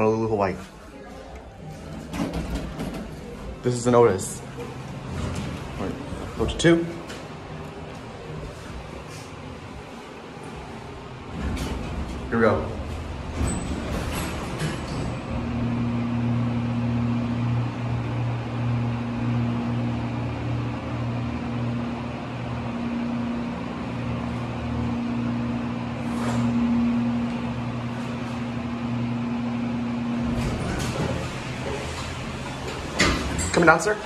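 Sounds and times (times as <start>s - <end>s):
elevator hydraulic pump hum: 0.0s - 34.0s.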